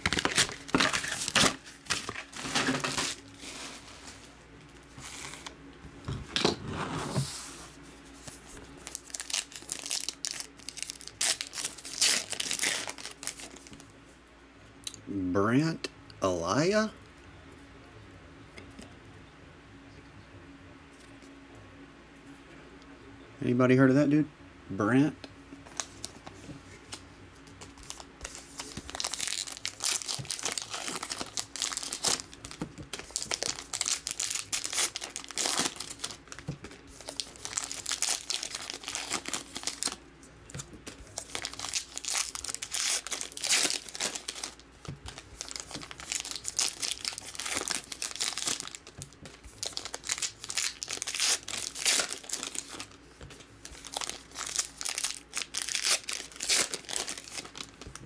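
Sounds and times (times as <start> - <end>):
foil wrappers crinkling: 0.0 - 4.4, 8.2 - 13.8, 27.6 - 58.0.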